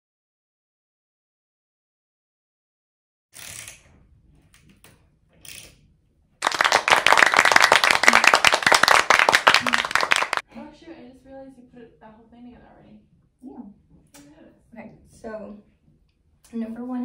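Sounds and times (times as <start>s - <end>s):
loud applause: 6.4s - 10.4s.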